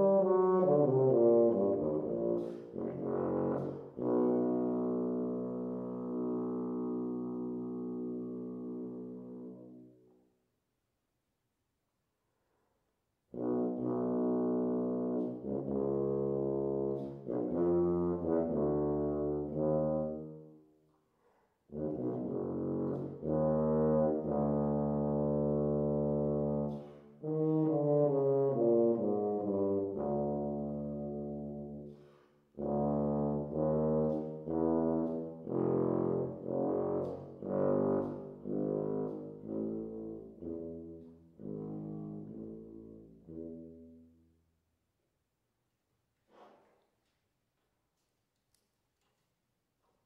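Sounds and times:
tuba playing detached notes: 0.0 - 9.8, 13.3 - 20.6, 21.7 - 44.2.

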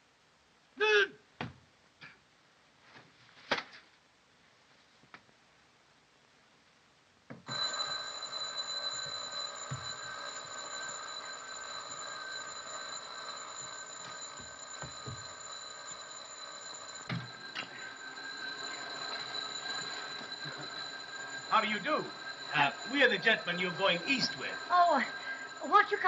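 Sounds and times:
electric doorbell ringing: 7.5 - 26.0.

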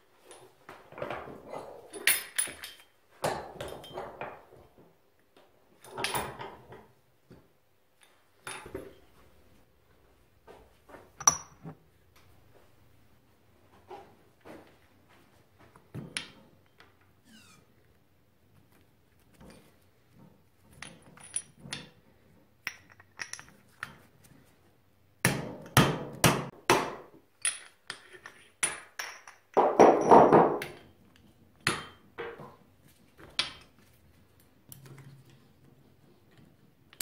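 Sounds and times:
metal tools knocking and clinking: 1.9 - 4.6, 20.7 - 22.0, 22.6 - 24.0.

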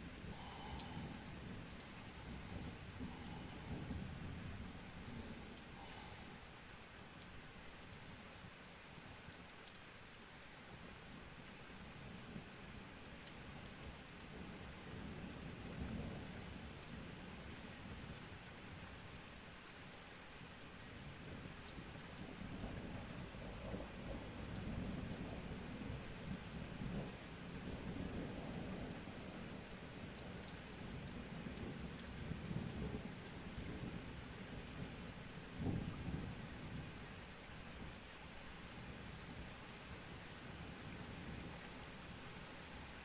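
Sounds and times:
rain hissing: 0.0 - 10.8.

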